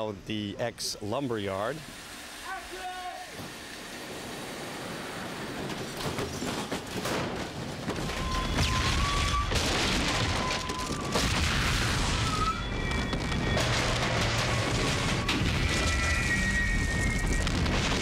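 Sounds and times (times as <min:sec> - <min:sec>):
pyrotechnic charges banging: 0:07.1 - 0:18.0
deep rumble of blasts: 0:10.0 - 0:18.0.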